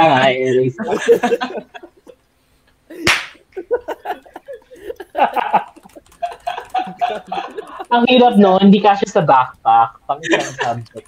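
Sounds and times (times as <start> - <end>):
people laughing: 0.0 - 2.2, 2.9 - 8.1, 10.2 - 11.0
sharp smack: 3.1 - 3.4.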